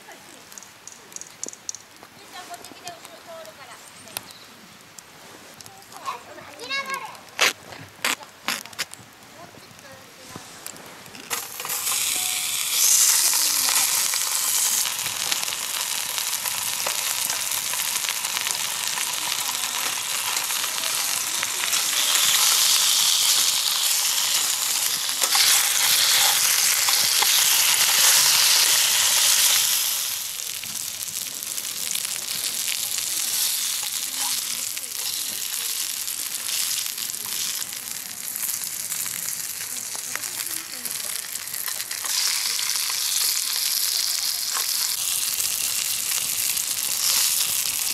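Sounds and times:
food sizzling in a pan: 0:10.4 - 0:47.9.

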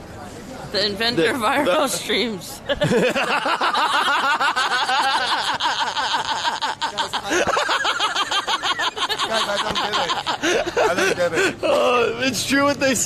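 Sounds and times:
men laughing hard: 0:02.7 - 0:11.9.

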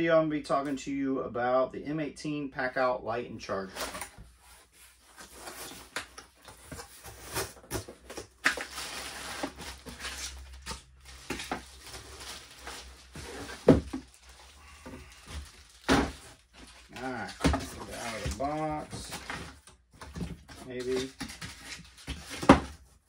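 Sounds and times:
cardboard scraping and rustling: 0:03.7 - 0:23.0
plastic wrap crinkling: 0:05.1 - 0:19.7.

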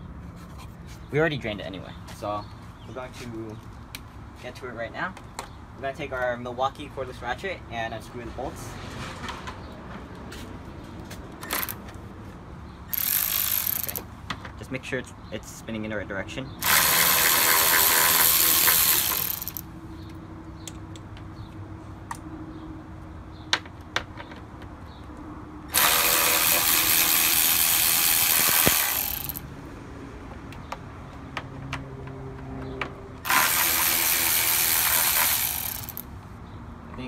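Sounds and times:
cordless ratchet running: 0:12.9 - 0:14.0, 0:16.6 - 0:19.7, 0:25.7 - 0:29.4, 0:33.2 - 0:36.1.

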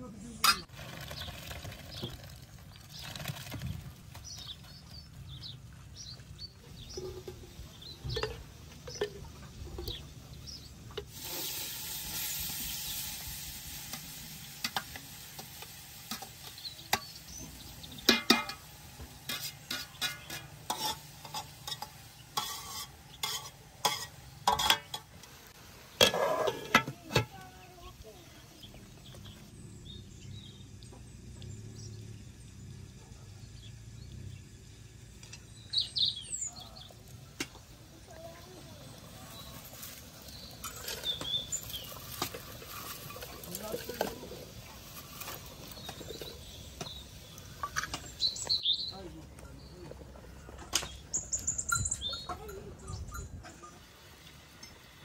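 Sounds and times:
steady hiss: 0:10.0 - 0:28.9
metal cookware clinking: 0:14.5 - 0:25.2.

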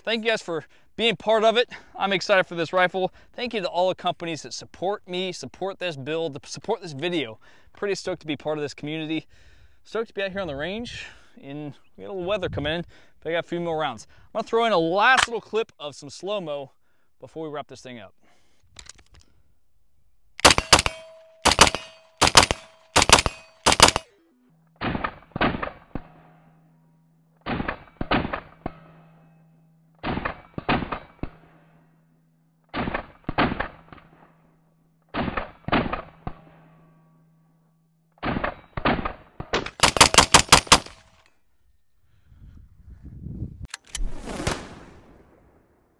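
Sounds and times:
rifle gunshots: 0:20.4 - 0:24.1, 0:38.2 - 0:41.1.

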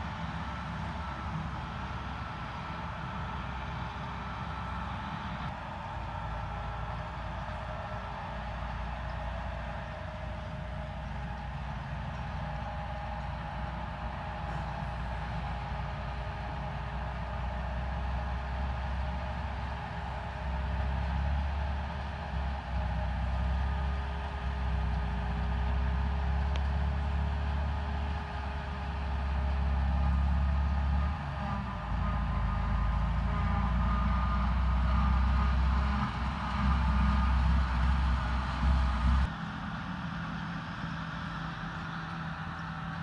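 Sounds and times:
tractor engine running: 0:00.0 - 0:43.0.

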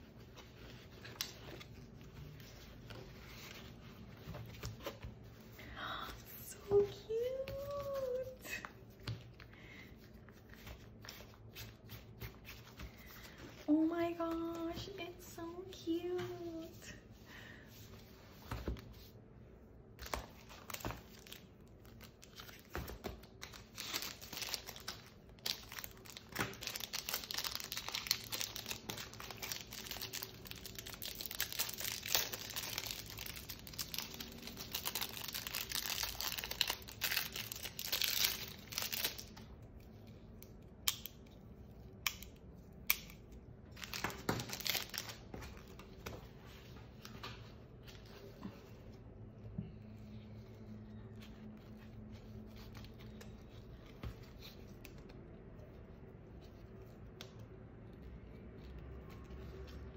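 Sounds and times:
plastic packaging crinkling: 0:20.0 - 0:39.6, 0:43.7 - 0:45.8.

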